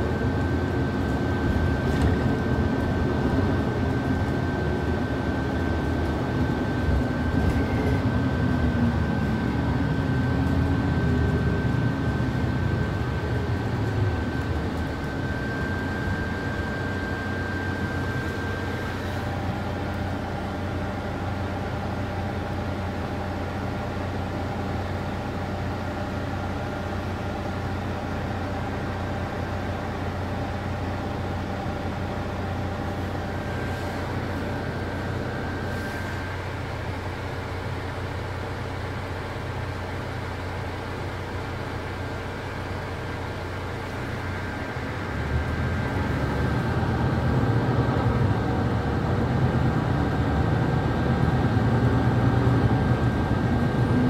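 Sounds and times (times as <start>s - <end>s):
bus engine and road drone: 0.0s - 54.0s
faint high whine: 6.3s - 21.6s.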